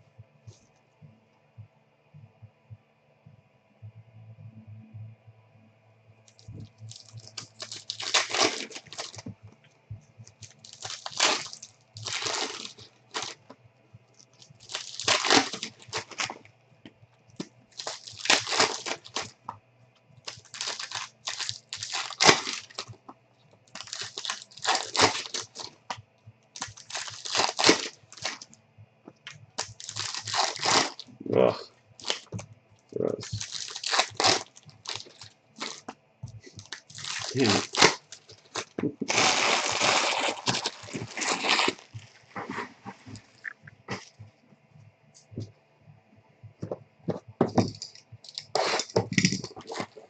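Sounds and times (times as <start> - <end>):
foil wrappers crackling: 6.4 - 9.4, 10.3 - 13.5, 14.2 - 16.4, 17.8 - 19.4, 20.3 - 23.0, 23.7 - 26.0, 26.6 - 28.5, 29.6 - 31.1, 32.0 - 32.4, 33.2 - 44.1, 47.4 - 50.0.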